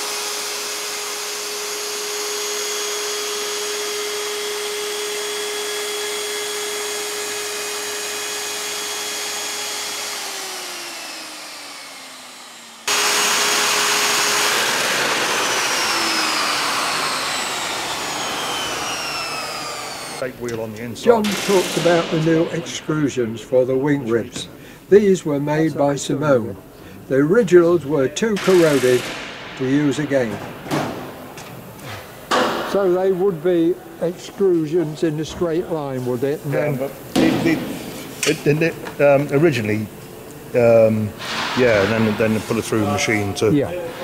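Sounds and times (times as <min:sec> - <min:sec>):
electric router running: 0:00.0 - 0:23.6.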